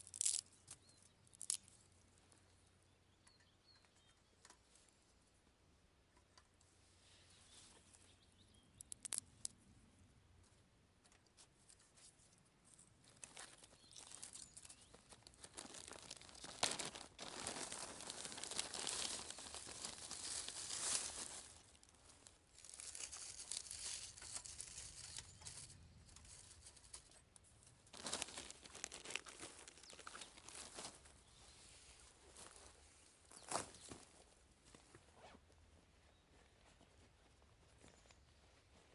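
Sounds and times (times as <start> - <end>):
plastic bag crinkling: 13.5 - 21.9, 22.5 - 27.1, 27.9 - 31.0.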